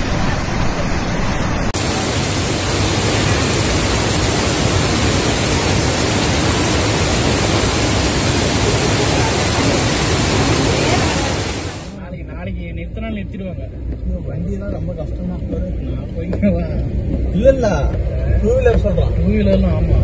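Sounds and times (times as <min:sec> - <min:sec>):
floodwater torrent roaring: 0:00.0 - 0:12.0.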